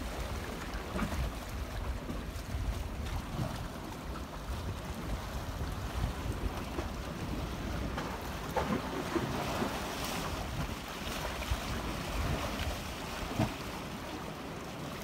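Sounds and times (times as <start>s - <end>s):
sea washing on rocky shore: 0.0s - 15.0s
wind buffeting microphone: 0.1s - 8.9s.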